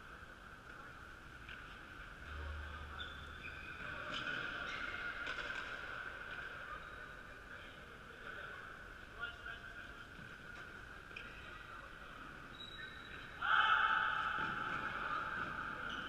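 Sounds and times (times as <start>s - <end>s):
sneakers squeaking on wooden court: 2.9s - 5.7s, 12.5s - 13.4s, 14.4s - 16.0s.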